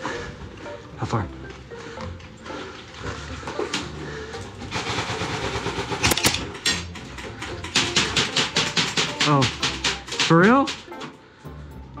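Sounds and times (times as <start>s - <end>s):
airsoft rifle shots: 4.8s - 6.5s.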